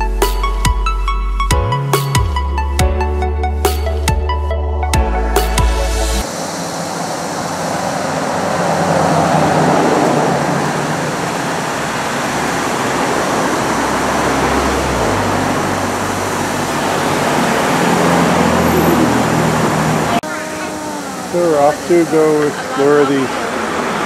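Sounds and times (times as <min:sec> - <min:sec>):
low engine rumble: 0:03.1 - 0:24.0
street traffic noise: 0:05.0 - 0:24.0.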